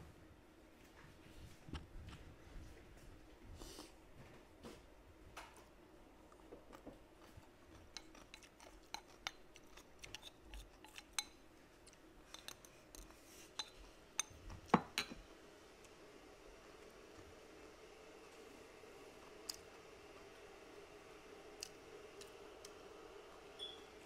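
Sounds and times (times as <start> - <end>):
person chewing with mouth clicks: 6.3 - 11.2.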